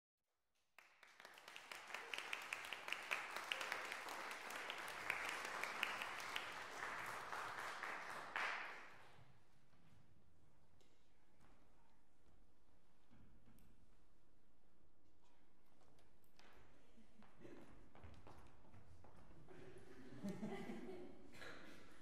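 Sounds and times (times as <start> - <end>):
audience applauding: 0.8 - 9.0.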